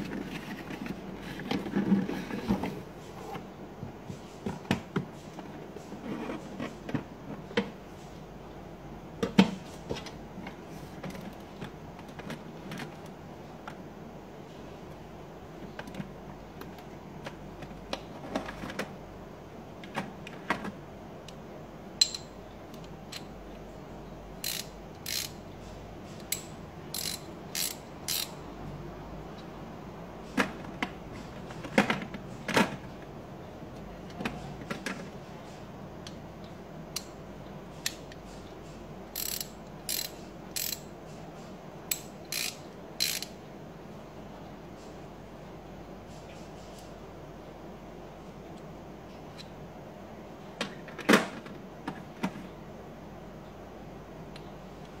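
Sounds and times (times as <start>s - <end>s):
ratchet clicking: 24.4s - 25.4s, 26.3s - 28.4s, 39.2s - 40.8s, 41.9s - 43.3s.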